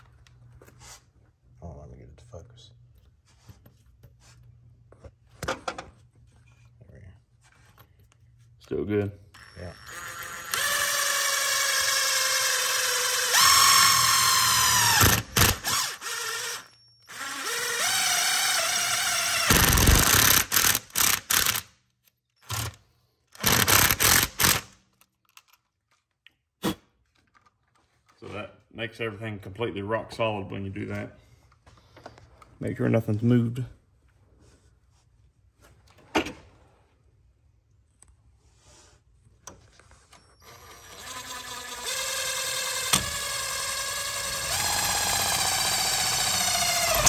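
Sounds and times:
drill motor whining under load: 0:09.4 - 0:21.6, 0:40.4 - 0:47.0
power driver driving screw: 0:09.4 - 0:21.7, 0:23.4 - 0:24.8, 0:40.4 - 0:47.0.

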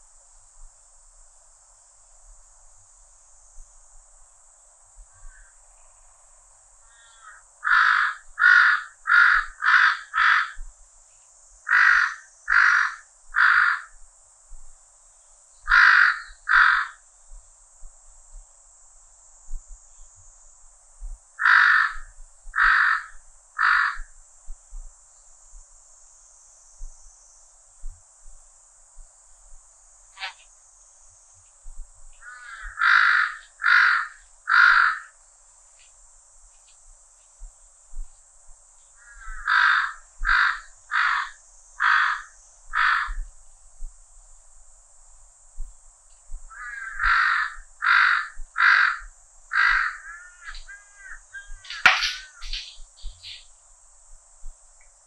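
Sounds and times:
cicada drone: 0:00.0 - 0:55.0
crow cawing: 0:05.1 - 0:05.6, 0:06.8 - 0:10.6, 0:11.7 - 0:14.0, 0:15.7 - 0:17.0, 0:21.4 - 0:24.1, 0:32.2 - 0:35.1, 0:39.0 - 0:43.2, 0:46.5 - 0:53.4.

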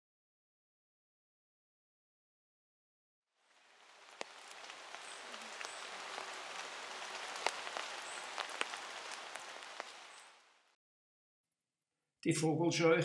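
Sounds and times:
rain pattering: 0:03.4 - 0:10.8.

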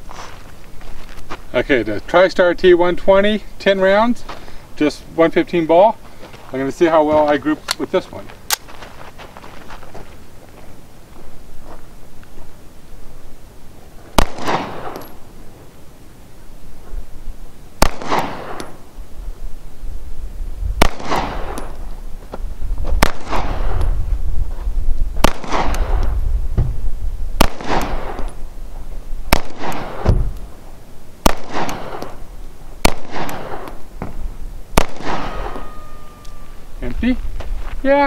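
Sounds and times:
pistol shots with echo: 0:14.2 - 0:15.2, 0:17.8 - 0:18.8, 0:20.8 - 0:21.8, 0:23.0 - 0:23.8, 0:25.2 - 0:26.1, 0:27.4 - 0:28.4, 0:29.3 - 0:30.1, 0:31.2 - 0:32.2, 0:32.8 - 0:33.8, 0:34.8 - 0:36.1.

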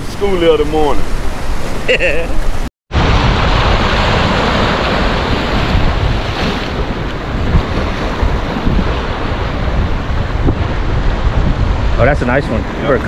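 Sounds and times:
wind rumbling on microphone: 0:00.0 - 0:13.0
surf breaking on boulders: 0:02.9 - 0:13.0.

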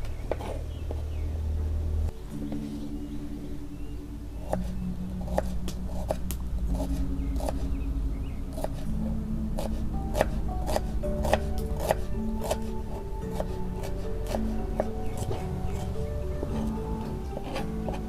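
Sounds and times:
background music held notes: 0:00.0 - 0:18.0
knife cutting on board: 0:05.3 - 0:07.7, 0:09.6 - 0:18.0.

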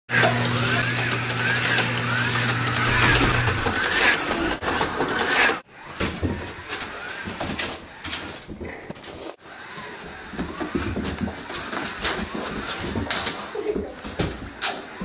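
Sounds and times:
loud engine-like whining: 0:00.1 - 0:04.6
toy slot cars whirring: 0:00.1 - 0:08.4, 0:09.2 - 0:15.0.

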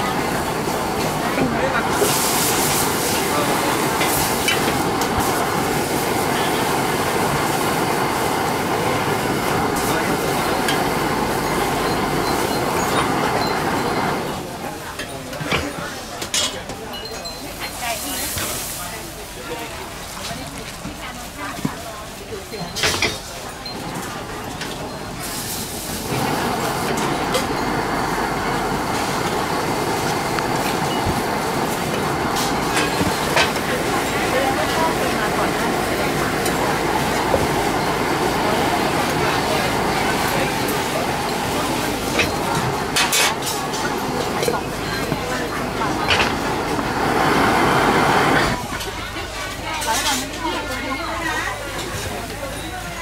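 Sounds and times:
gas burner flame hissing: 0:00.0 - 0:16.5, 0:22.3 - 0:52.4
prawns sizzling in a metal pot: 0:01.2 - 0:08.2.

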